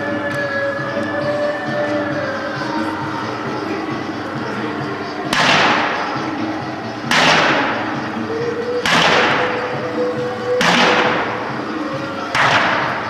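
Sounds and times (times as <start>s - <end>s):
crashing percussive strikes: 7.1s - 7.9s.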